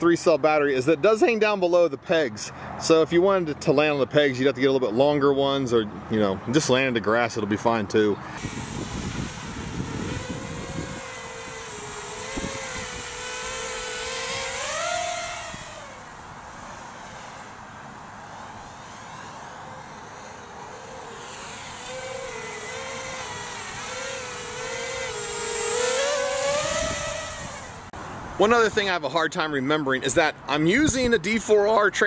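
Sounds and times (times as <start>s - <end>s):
quadcopter motors whining: 8.3s - 27.9s.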